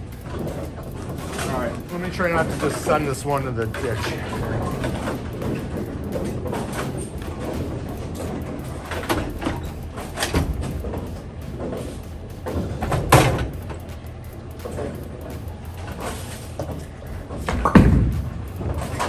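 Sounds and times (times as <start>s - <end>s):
bowling ball rolling on rails: 0.0s - 19.0s
low hum of bowling alley: 0.0s - 19.0s.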